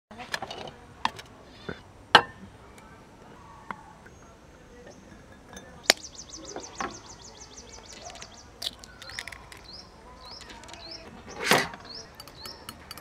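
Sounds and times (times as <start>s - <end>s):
bird chirping: 3.4s - 13.0s
egg cracked on glass bowl: 8.6s - 9.6s.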